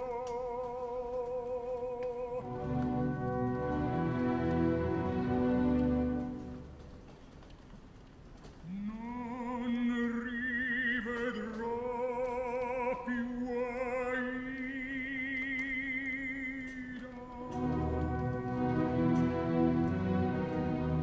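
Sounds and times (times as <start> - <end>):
operatic tenor singing: 0.0 - 6.4, 8.6 - 21.0
low orchestral strings: 2.3 - 7.2, 16.9 - 21.0.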